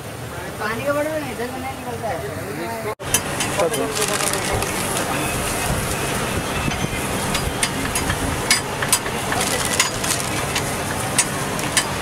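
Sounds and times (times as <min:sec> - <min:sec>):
street bustle: 0:00.0 - 0:12.0
traffic hum: 0:00.0 - 0:12.0
sharp clicks and clatter: 0:07.4 - 0:12.0.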